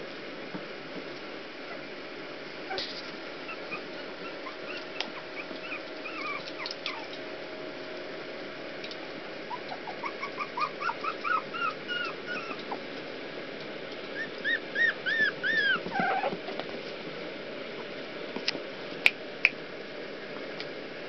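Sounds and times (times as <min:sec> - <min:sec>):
puppies whimpering: 0:03.4 - 0:07.2, 0:09.5 - 0:12.9, 0:14.1 - 0:16.6.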